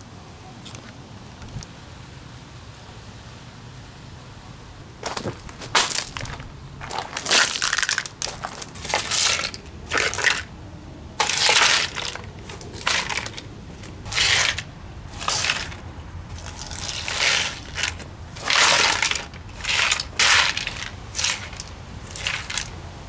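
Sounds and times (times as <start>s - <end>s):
plastic crunching on concrete: 5.0s - 10.5s, 11.2s - 22.8s.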